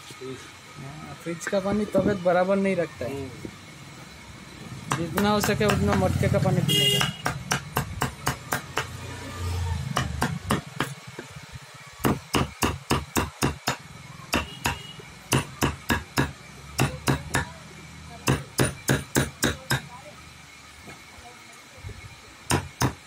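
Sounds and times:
hammer blows: 6.7s - 9.0s, 12.0s - 17.5s.

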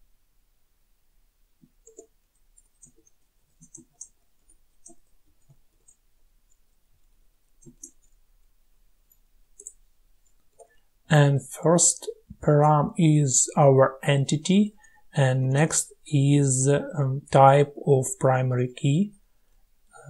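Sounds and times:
typing on a computer keyboard: 1.6s - 6.7s, 7.6s - 8.2s, 9.1s - 10.7s.

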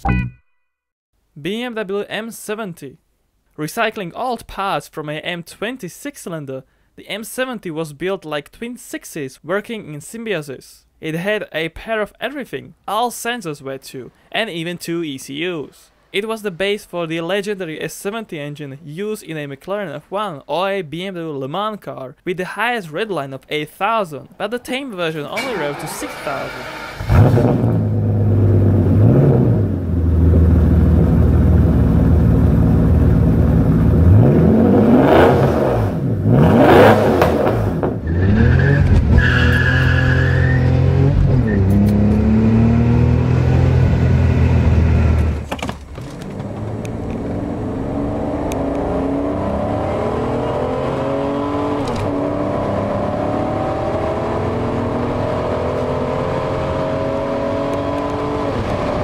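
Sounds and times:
car engine revving and accelerating: 25.4s - 32.0s, 32.8s - 45.4s, 46.2s - 59.0s.

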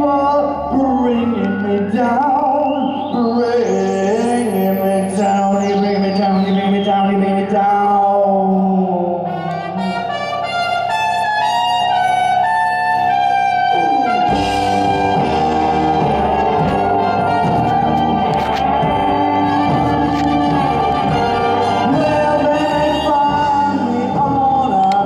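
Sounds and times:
drums: 0.0s - 25.0s
trumpet melody: 9.2s - 25.0s
double bass: 12.4s - 24.9s.

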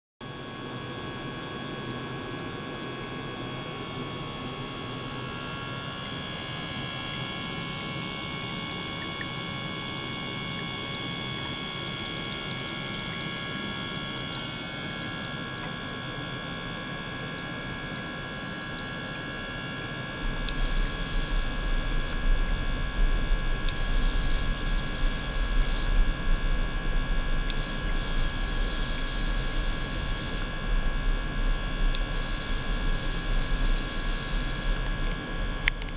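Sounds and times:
low electric buzz: 0.3s - 35.9s
electrical hum: 1.2s - 35.9s
high steady tones: 20.5s - 22.2s, 23.7s - 25.9s, 27.5s - 30.5s, 31.9s - 34.8s
short hissing bursts: 20.5s - 22.2s, 23.7s - 26.0s, 27.5s - 30.5s, 32.0s - 34.8s.

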